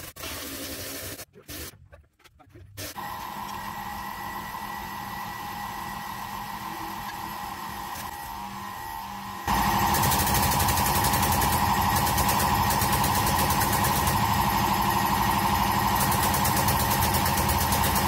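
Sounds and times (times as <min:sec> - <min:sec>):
mechanical hum with faint whine: 0:03.0 - 0:10.0.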